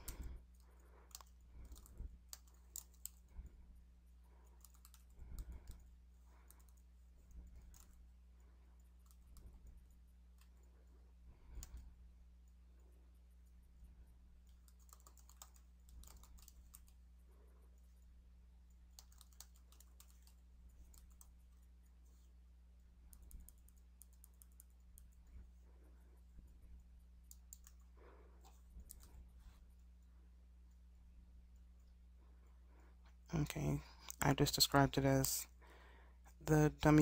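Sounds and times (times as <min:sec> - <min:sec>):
typing on keyboard: 0:00.0 - 0:03.3, 0:04.5 - 0:05.9, 0:14.4 - 0:17.0, 0:18.8 - 0:21.3, 0:23.1 - 0:25.2, 0:27.2 - 0:27.9
steady low hum: 0:00.0 - 0:37.0.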